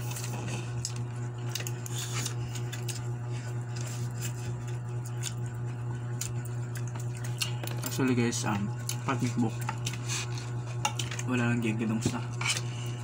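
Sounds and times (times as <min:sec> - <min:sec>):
chewing: 0:00.0 - 0:08.0.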